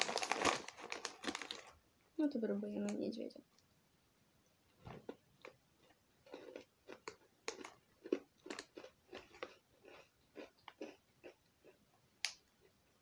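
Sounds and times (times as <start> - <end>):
person chewing crunchy biscuit: 5.0 - 11.9.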